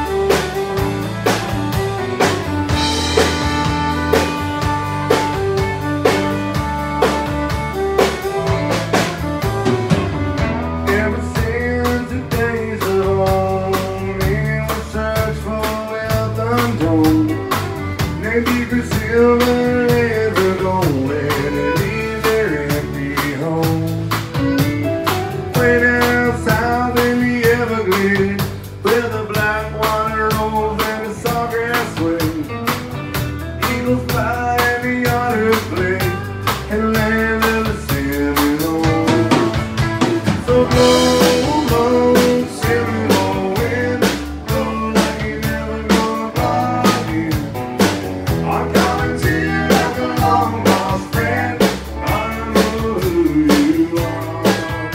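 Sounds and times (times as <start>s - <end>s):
fiddle playing: 0.0s - 11.9s, 15.5s - 27.0s, 32.4s - 54.9s
drum kit beat: 0.0s - 54.9s.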